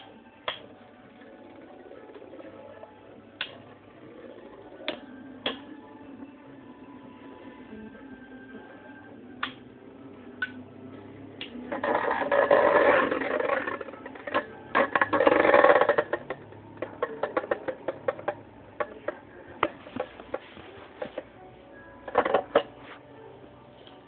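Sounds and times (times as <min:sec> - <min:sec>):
spinning tops rasping whirr: 0:00.0 - 0:09.2.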